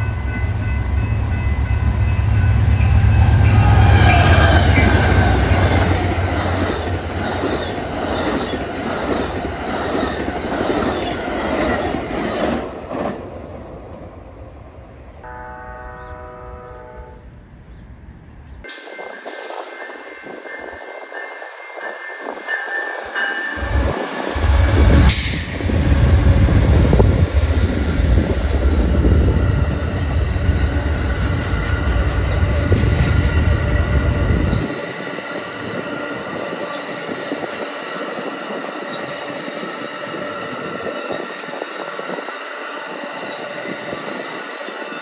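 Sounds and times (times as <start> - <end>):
rush of wheels on rail: 18.7 - 45.0.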